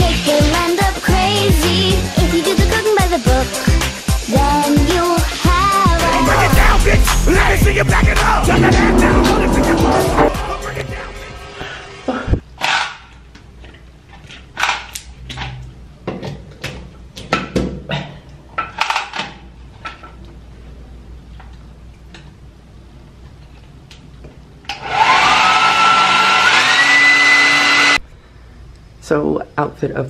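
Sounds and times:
hair dryer blowing: 24.8s - 28.0s.

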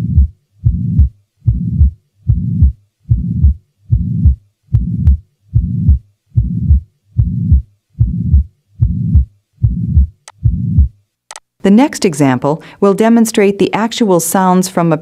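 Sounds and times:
heartbeat with whooshing murmur: 0.0s - 11.0s.

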